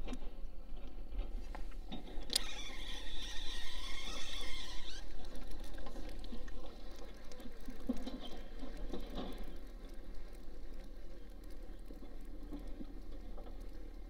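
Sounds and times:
fishing reel click: 2.2s - 6.2s
fishing reel whirring: 2.3s - 8.6s.

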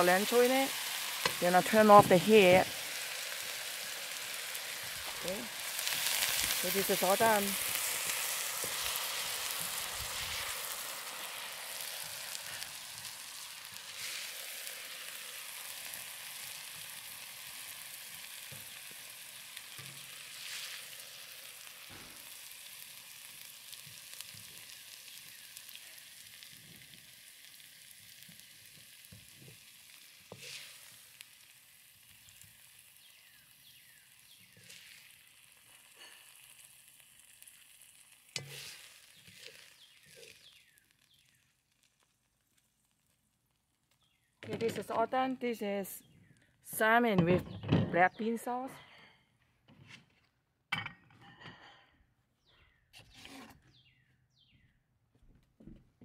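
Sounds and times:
food sizzling in a wok: 0.0s - 42.0s
spatula tapping and scraping: 38.4s - 40.4s.

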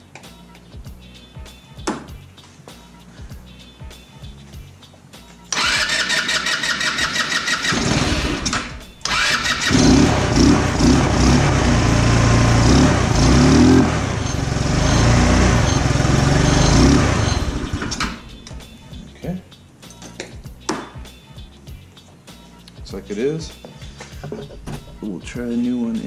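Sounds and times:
electric starter cranking engine: 5.5s - 18.3s
scooter engine running: 5.6s - 18.3s.

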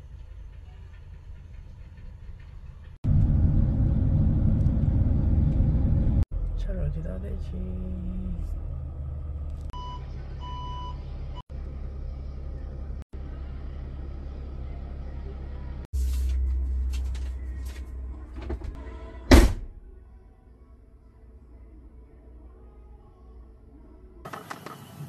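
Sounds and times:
van engine running: 2.9s - 18.8s
short electronic beeps: 9.8s - 11.0s.

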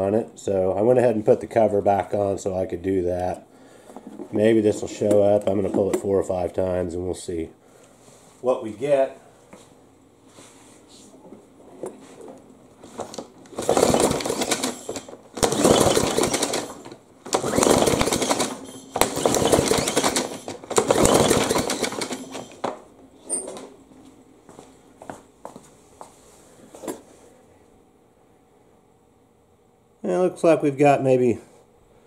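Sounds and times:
mower engine cranking with rope whirring: 13.0s - 23.7s.

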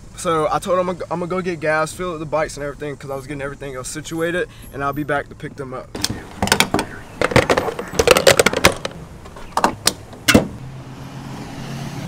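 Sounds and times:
sharp knocks: 6.0s - 10.6s.

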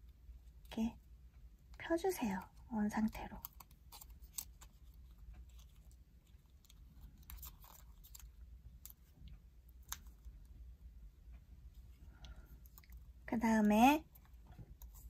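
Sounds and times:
paper crinkling and crackling: 2.2s - 10.4s, 12.4s - 15.0s.

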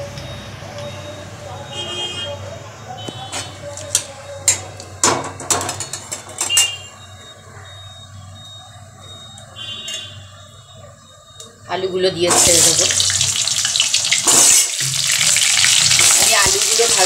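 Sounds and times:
seeds sizzling in hot oil: 12.3s - 17.0s
metal spatula scraping a pan: 14.2s - 14.8s.

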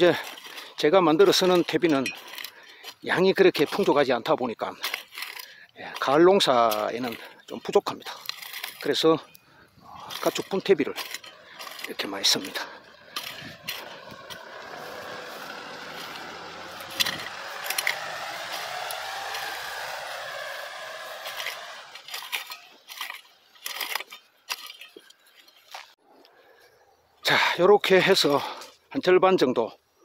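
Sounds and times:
rake scraping soil: 0.0s - 26.0s
vehicle passing: 11.0s - 22.1s.

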